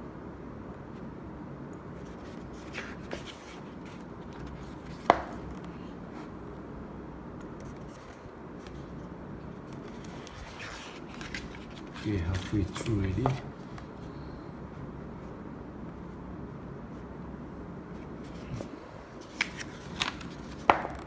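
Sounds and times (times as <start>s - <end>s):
low room noise: 0.0s - 21.0s
book pages rustling: 2.0s - 6.4s, 7.4s - 14.0s, 17.9s - 21.0s.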